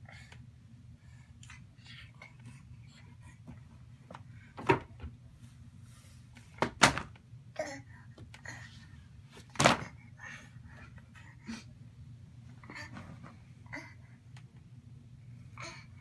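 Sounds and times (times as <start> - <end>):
books thudding onto books: 9.4 - 9.9.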